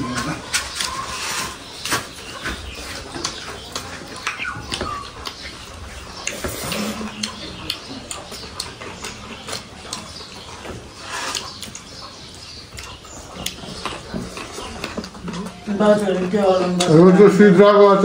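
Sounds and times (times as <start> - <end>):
chewing and mouth smacks: 2.9 - 15.7.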